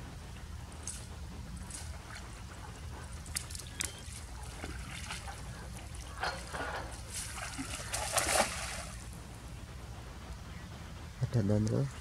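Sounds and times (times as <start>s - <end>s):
muddy water splashing: 0.0s - 9.3s.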